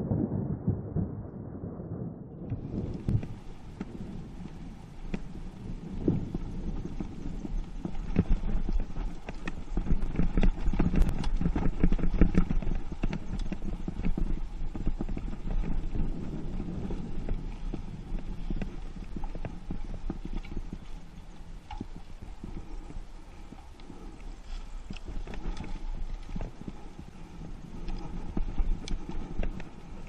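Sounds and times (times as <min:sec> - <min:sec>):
low wind rumble on microphone: 0:00.0 - 0:30.0
bike rattling over bumps: 0:02.5 - 0:30.0.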